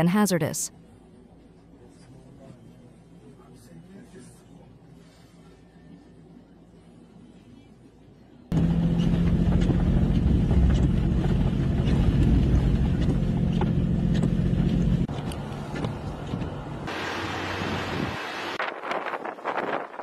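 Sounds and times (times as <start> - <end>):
low motor hum: 5.0 - 18.7
quieter rumble: 8.5 - 19.2
wind buffeting microphone: 17.5 - 20.0.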